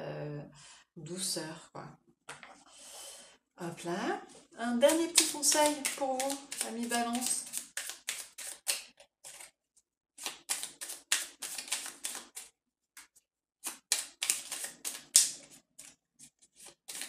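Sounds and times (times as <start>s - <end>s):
cards being shuffled: 4.8s - 9.5s, 10.2s - 17.0s.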